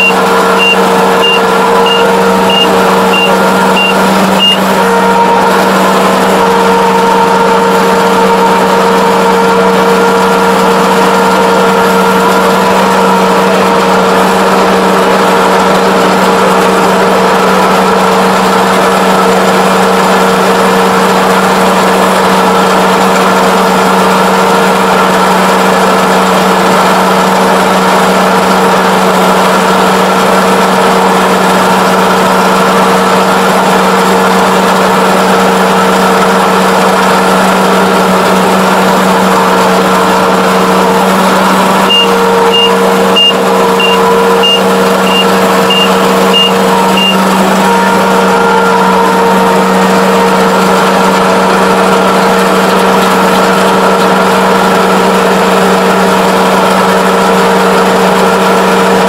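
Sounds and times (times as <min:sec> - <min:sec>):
alarm beeper short high beeps: 0:00.0 - 0:04.7, 0:41.9 - 0:47.2
combine harvester engine drone: 0:00.0 - 0:59.0.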